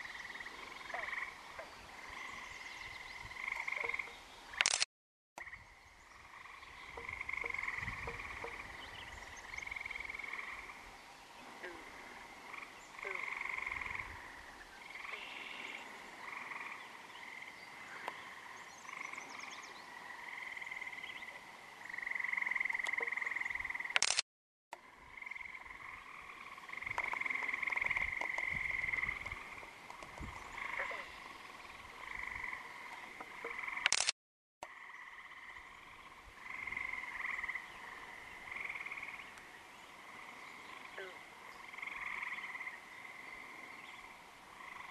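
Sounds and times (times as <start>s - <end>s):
frogs calling: 0.0s - 4.8s, 5.4s - 24.2s, 24.8s - 34.0s, 34.6s - 44.9s.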